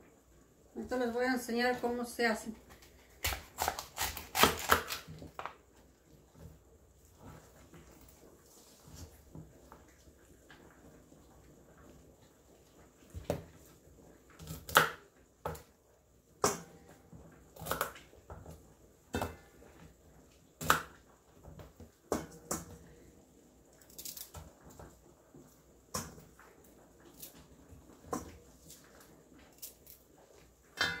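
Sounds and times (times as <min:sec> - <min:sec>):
knife crunching celery: 0:03.1 - 0:05.2.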